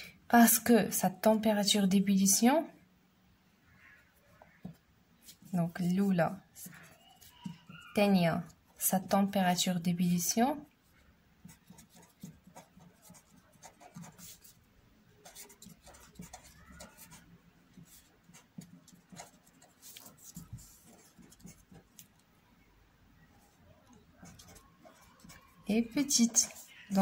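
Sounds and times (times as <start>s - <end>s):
felt-tip marker scratching: 11.5s - 14.6s, 15.2s - 22.1s, 24.2s - 27.0s.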